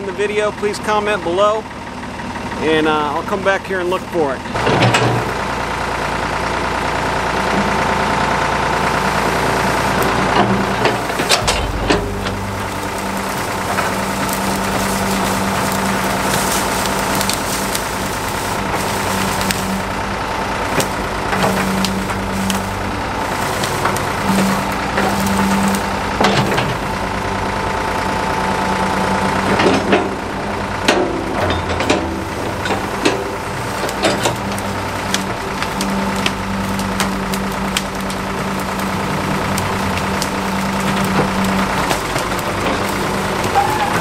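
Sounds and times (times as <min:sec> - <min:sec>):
backhoe engine under load: 0:00.0 - 0:44.0
branches cracking and snapping: 0:07.3 - 0:27.5, 0:31.9 - 0:44.0.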